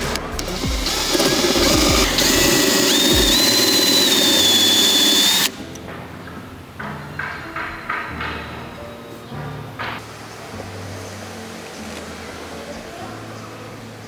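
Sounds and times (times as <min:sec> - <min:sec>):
power tool motor whining: 0:00.4 - 0:05.6.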